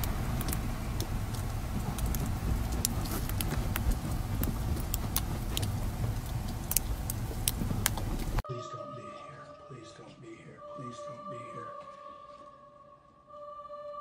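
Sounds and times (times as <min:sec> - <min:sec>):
faint scattered clicks: 0:00.0 - 0:08.4
low outdoor rumble: 0:00.0 - 0:08.4.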